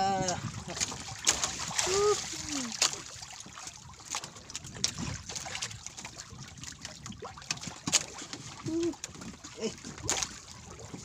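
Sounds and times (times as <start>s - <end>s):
water lapping against boat hull: 0.0s - 11.0s
clicks and knocks on boat: 2.7s - 11.0s.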